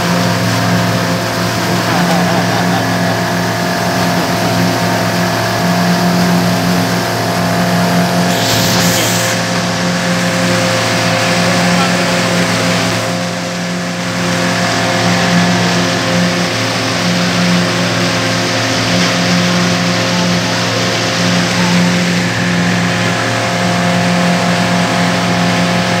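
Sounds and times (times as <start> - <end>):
hiss of wind and water: 0.0 - 18.9
boat motor humming: 0.0 - 26.0.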